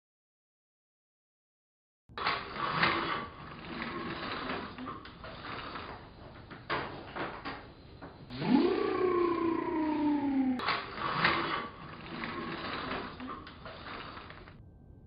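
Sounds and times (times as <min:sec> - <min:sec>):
voice-like call rising in pitch: 0:08.3 - 0:10.6.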